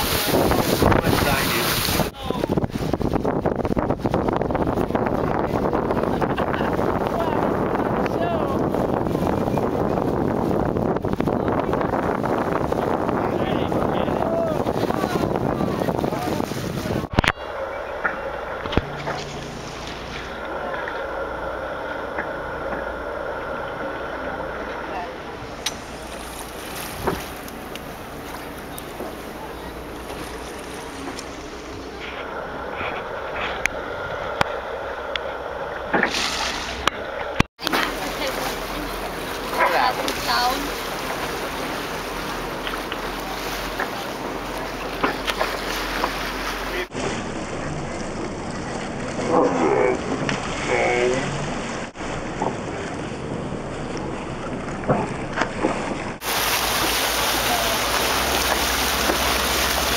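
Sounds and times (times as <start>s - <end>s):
wind buffeting the microphone: 0.0s - 47.0s
water rushing along a hull: 0.0s - 59.9s.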